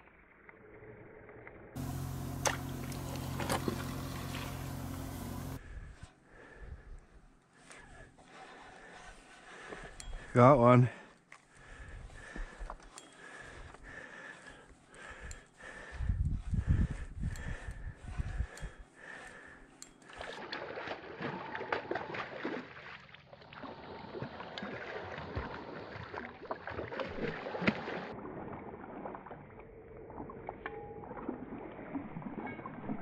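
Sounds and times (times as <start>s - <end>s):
wind buffeting microphone: 15.9s - 18.8s
fish splashing in water: 20.1s - 30.4s.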